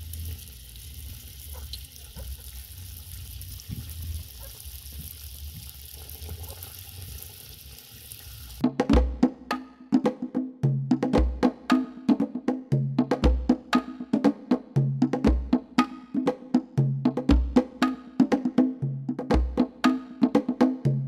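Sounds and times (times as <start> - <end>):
oil sizzling in a wok: 0.0 - 8.6
percussive music with wood-block beat: 8.6 - 21.0.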